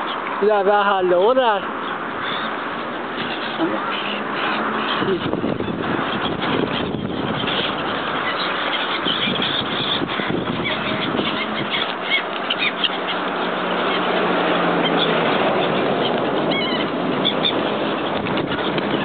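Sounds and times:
flock of waterfowl calling: 0.0 - 19.0.

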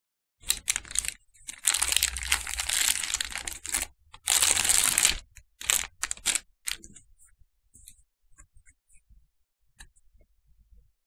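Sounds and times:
plastic film crinkling: 0.4 - 6.8.

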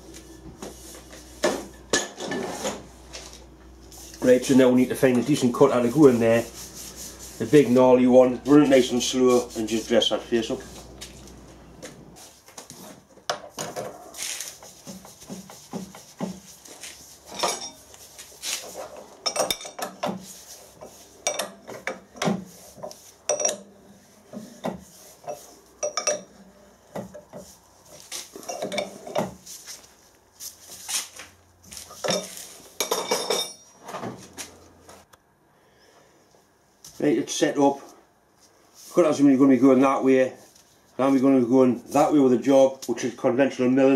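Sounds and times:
steel tooling clinking: 17.3 - 17.9, 21.2 - 22.0, 23.3 - 23.7, 25.2 - 26.3, 32.0 - 33.8.

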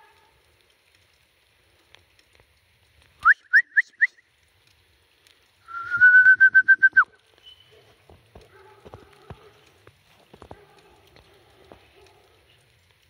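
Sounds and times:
long level whistle: 3.2 - 4.2, 5.6 - 7.7
short rising whistles: 5.7 - 7.7.

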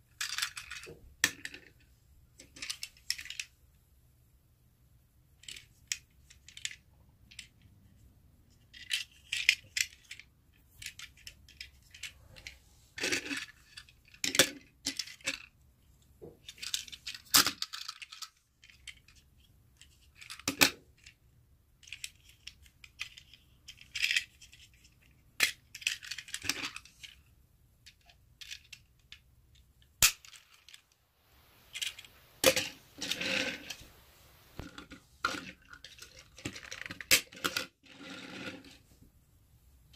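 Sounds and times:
plastic toy wagons clattering: 31.7 - 33.9.

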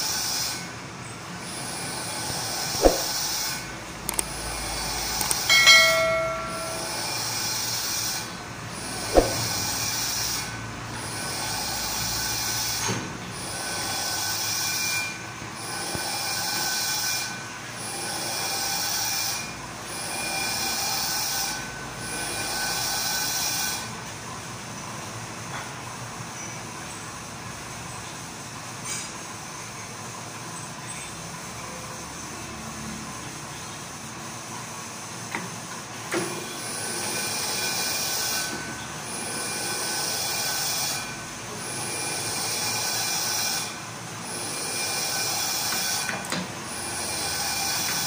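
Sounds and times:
metal lathe cutting hiss: 0.0 - 0.7, 11.1 - 19.4, 36.6 - 48.0
ringing metal clink: 5.2 - 7.6
sharp metal clank: 5.2 - 7.6, 9.0 - 9.8
thin squeal: 5.2 - 7.7.

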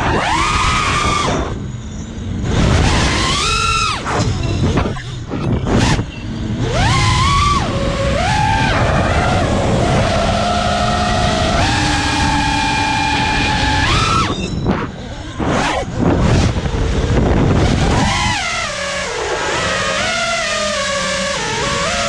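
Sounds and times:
drone motors whining: 0.0 - 22.0
rushing fluttering air noise: 0.0 - 22.0.

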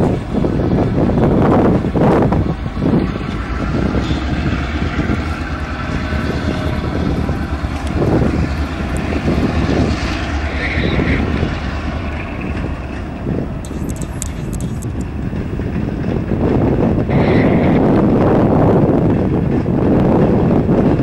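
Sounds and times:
diesel locomotive engine drone: 0.0 - 21.0
freight cars rumbling on track: 0.0 - 21.0.

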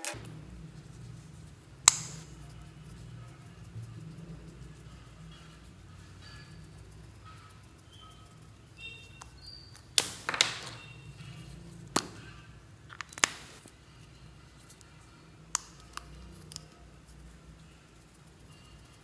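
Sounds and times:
plastic tubes clicking: 9.2 - 10.8.

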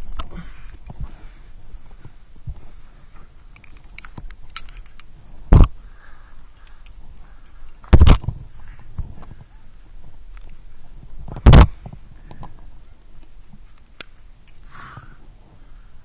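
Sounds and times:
climbing gear clinking: 0.0 - 2.0, 3.2 - 5.2, 6.3 - 9.4.

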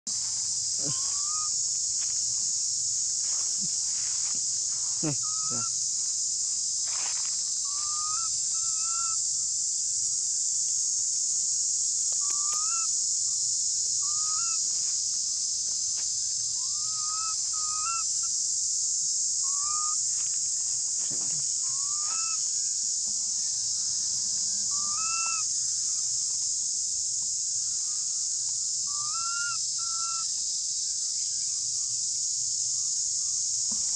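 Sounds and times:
steady high hiss: 0.1 - 33.9
infant monkey squeaky calls: 5.2 - 5.8, 7.7 - 9.2, 16.7 - 18.1, 19.5 - 20.0, 21.7 - 22.4.

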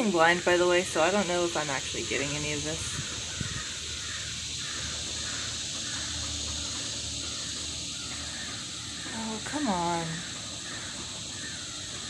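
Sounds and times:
cicadas buzzing: 0.0 - 12.0
crows cawing: 2.9 - 12.0.

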